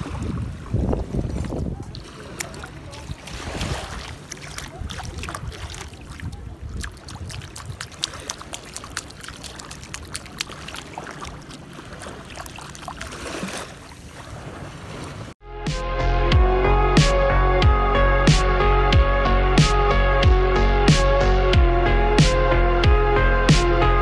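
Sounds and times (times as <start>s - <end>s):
wind buffeting microphone: 0.0s - 10.5s
music: 15.4s - 24.0s.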